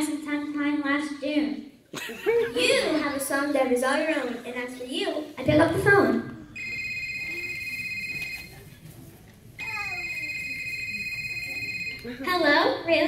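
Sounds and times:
telephone ringing: 0:06.6 - 0:08.6, 0:09.6 - 0:12.2.

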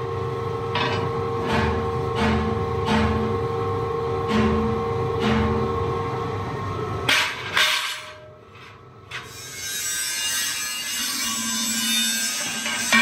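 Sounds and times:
workshop machinery humming: 0:00.0 - 0:13.0
metal clanks: 0:07.1 - 0:09.3.

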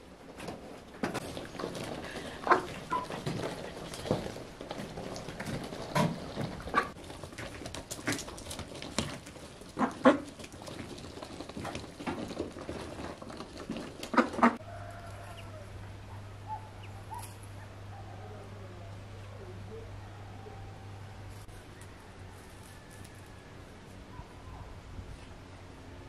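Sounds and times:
low steady hum: 0:00.0 - 0:26.0
birds pecking: 0:01.0 - 0:24.2
ducks quacking: 0:09.8 - 0:10.3.

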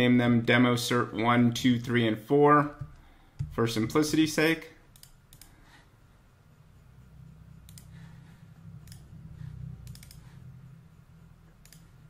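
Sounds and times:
low steady rumble: 0:00.0 - 0:12.0
faint computer mouse clicks: 0:04.9 - 0:05.6, 0:09.8 - 0:10.3, 0:11.6 - 0:12.0.

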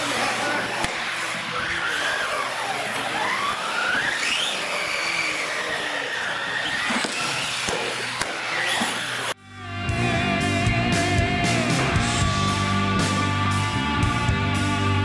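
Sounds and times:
rc truck motor whine: 0:00.0 - 0:09.4.

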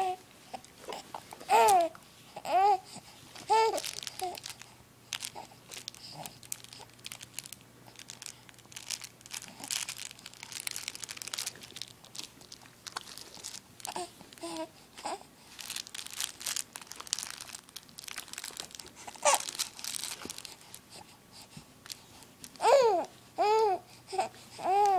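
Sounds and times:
crinkle toy crinkling: 0:00.9 - 0:02.0, 0:02.9 - 0:21.1, 0:21.8 - 0:22.9
baby cooing: 0:00.9 - 0:02.9, 0:03.5 - 0:04.4, 0:13.9 - 0:15.3, 0:19.0 - 0:19.5, 0:22.6 - 0:24.9.

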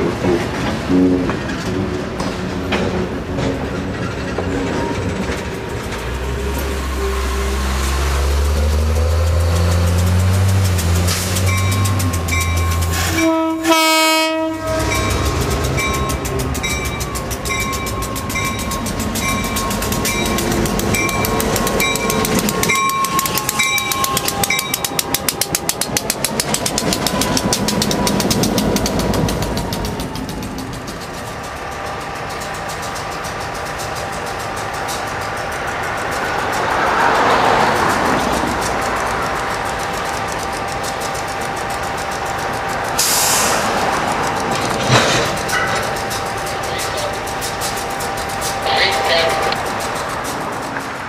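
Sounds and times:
truck engine rumbling: 0:00.0 - 0:13.7, 0:14.3 - 0:51.0
train wheels clattering on rails: 0:00.0 - 0:51.0
locomotive horn blast: 0:12.9 - 0:15.4
bell dinging: 0:14.9 - 0:25.0.

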